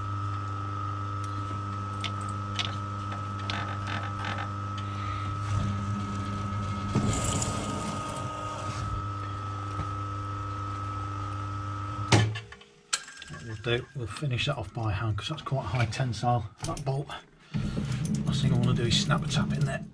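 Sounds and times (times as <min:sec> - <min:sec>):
lathe motor hum and whine: 0:00.0 - 0:12.2.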